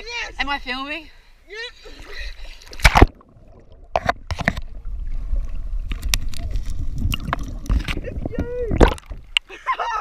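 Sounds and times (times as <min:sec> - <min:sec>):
underwater rumble of moving water: 0:03.0 - 0:09.4.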